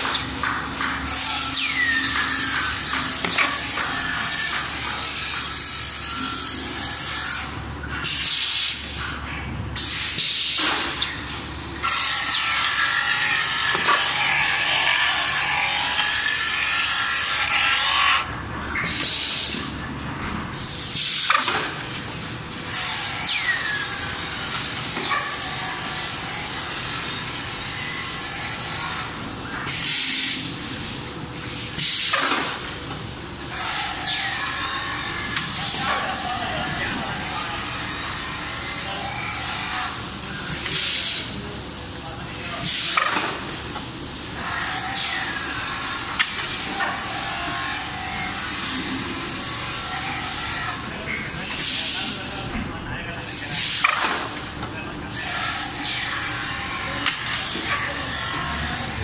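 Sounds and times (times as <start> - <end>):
polishing wheels grinding trays: 11.8 - 19.8.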